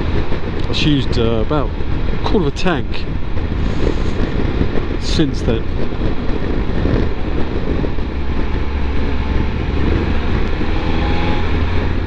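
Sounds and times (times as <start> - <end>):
motorcycle engine cruising: 0.0 - 12.0
wind rumbling on microphone: 0.0 - 12.0.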